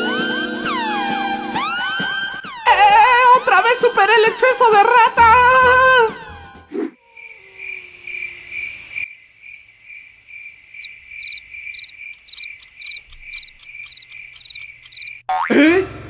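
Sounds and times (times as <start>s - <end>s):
crickets chirping: 7.0s - 15.3s
faster chirping with clicks: 10.8s - 15.3s.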